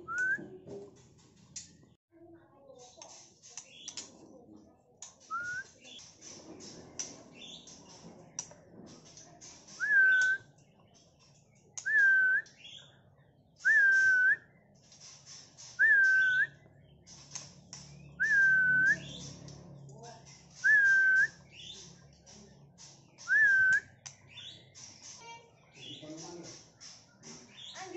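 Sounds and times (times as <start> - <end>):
scratchy high bird chirps: 2.6 - 4.0, 20.3 - 27.9.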